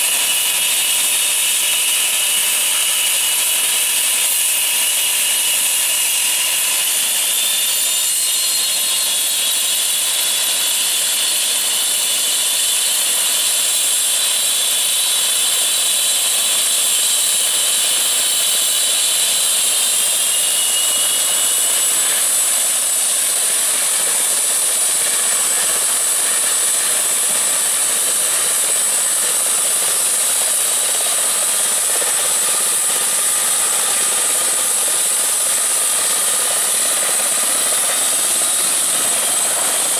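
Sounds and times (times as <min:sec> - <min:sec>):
helicopter turbine whine: 0:00.0 - 0:39.9.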